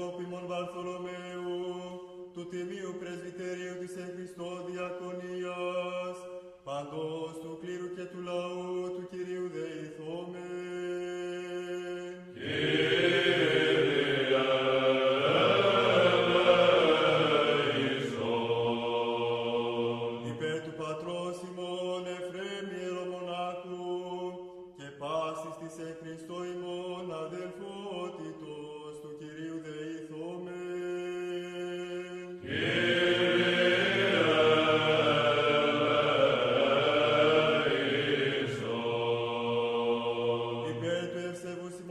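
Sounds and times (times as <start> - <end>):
voices chanting a slow melody: 12.1 - 21.1, 32.2 - 41.9.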